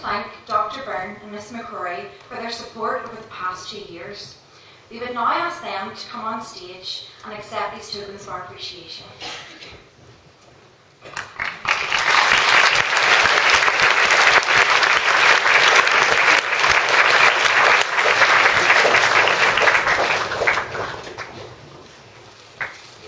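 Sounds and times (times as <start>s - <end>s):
audience applauding: 11.0s - 21.8s, 22.6s - 23.0s.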